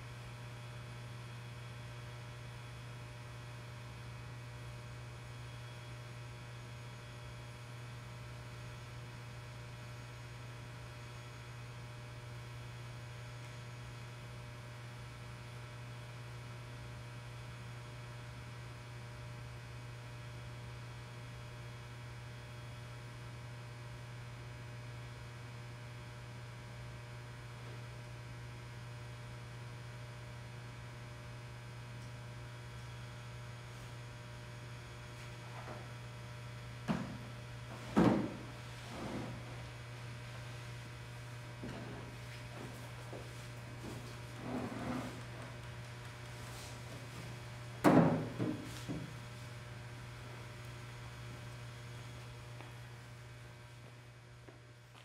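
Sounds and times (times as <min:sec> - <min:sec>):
low electrical hum: 0:00.0 - 0:55.0.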